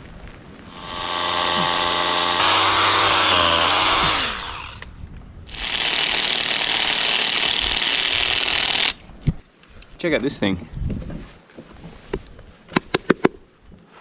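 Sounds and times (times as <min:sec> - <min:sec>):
rotary hammer drilling into stone: 0:00.7 - 0:04.9, 0:05.5 - 0:09.0.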